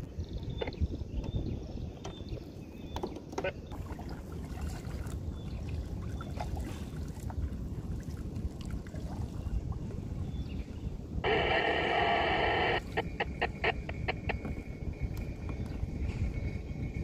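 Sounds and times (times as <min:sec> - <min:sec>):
paddle splashing in water: 0:03.7 - 0:10.2.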